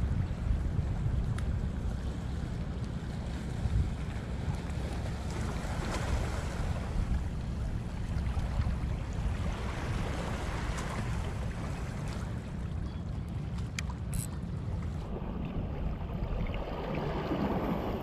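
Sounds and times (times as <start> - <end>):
wind buffeting microphone: 0.0 - 12.6.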